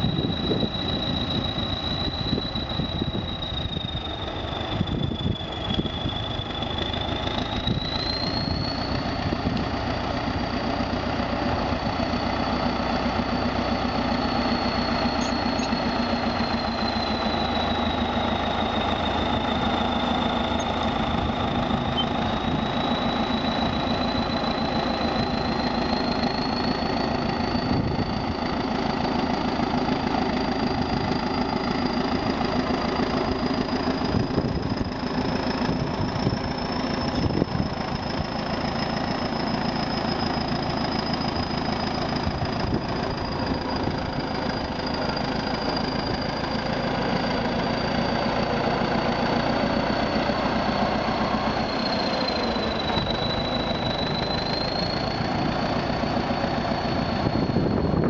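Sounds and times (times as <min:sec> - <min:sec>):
bulldozer diesel engine running: 0:00.0 - 0:58.0
high whine: 0:11.8 - 0:58.0.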